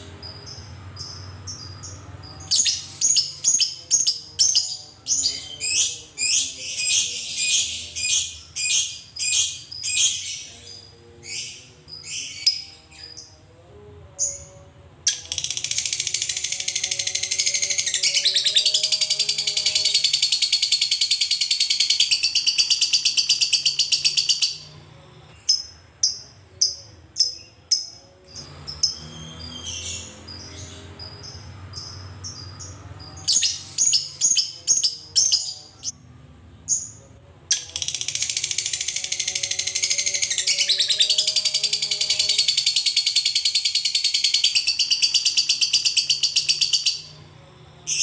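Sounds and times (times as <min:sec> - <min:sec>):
lovebird high-pitched trill: 0:15.1 - 0:24.8, 0:36.7 - 0:47.2.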